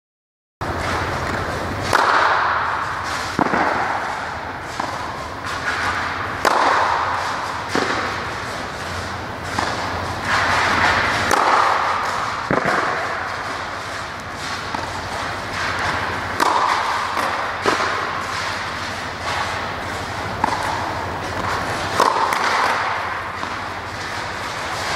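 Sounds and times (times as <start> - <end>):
tennis ball hit by rackets: 0.8 - 24.9.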